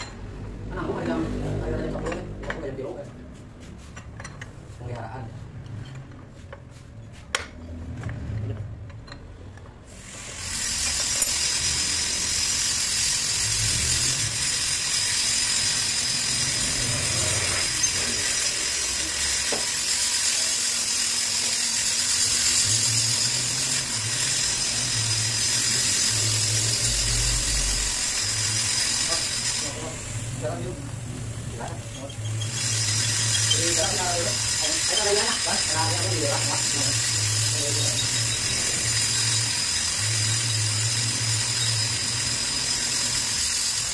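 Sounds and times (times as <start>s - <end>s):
milling machine cutting metal: 10.1s - 43.9s.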